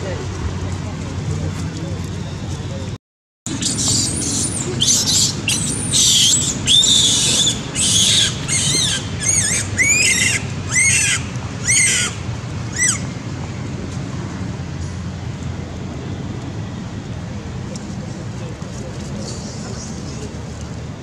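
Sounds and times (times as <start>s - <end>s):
baby monkey screaming: 3.6s - 13.1s.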